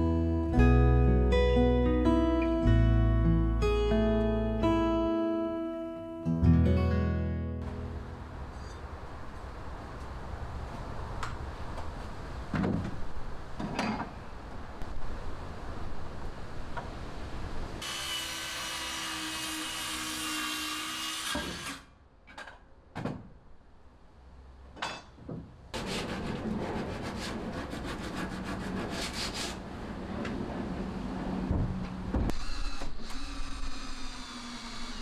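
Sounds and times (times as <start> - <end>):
saw cutting wood: 17.8 - 21.9, 25.8 - 29.6, 32.3 - 35.0
wood scraping on wood: 25.8 - 29.6.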